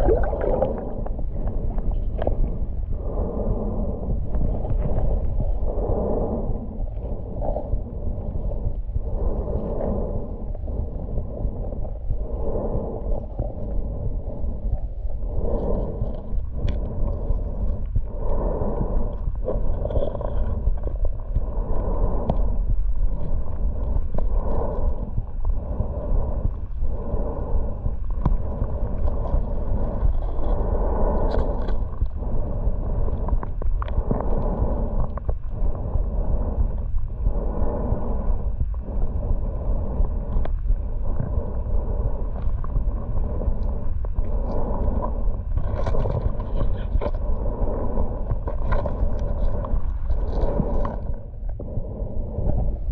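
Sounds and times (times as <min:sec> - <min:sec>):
muffled whooshing swells: 0:00.0 - 0:19.0
underwater rumble of water: 0:00.0 - 0:52.9.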